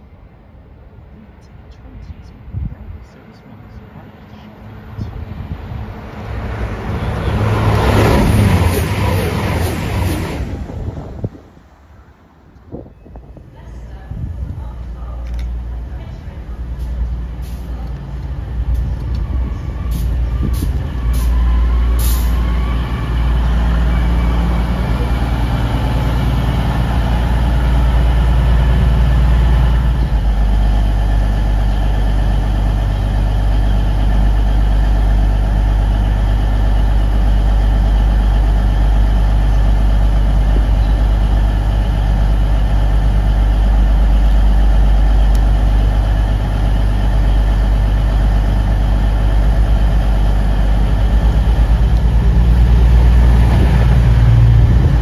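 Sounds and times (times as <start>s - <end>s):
diesel train engines: 0.0s - 55.0s
diesel engines idling: 13.6s - 55.0s.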